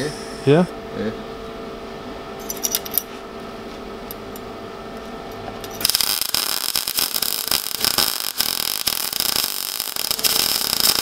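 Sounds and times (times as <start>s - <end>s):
welder arc crackling sizzle: 5.7s - 11.0s.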